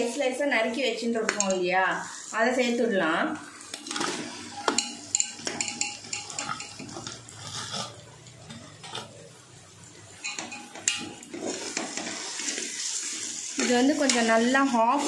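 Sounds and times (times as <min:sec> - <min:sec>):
metal spatula scraping pot: 0:03.7 - 0:09.5, 0:10.2 - 0:15.0.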